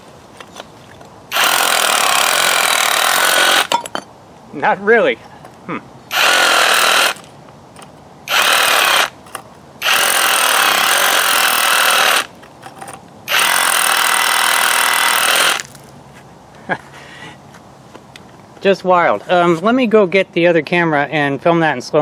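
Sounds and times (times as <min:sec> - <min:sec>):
drill bit hammering concrete: 0:01.3 - 0:04.0, 0:06.1 - 0:07.2, 0:08.3 - 0:09.1, 0:09.8 - 0:12.3, 0:13.3 - 0:15.7.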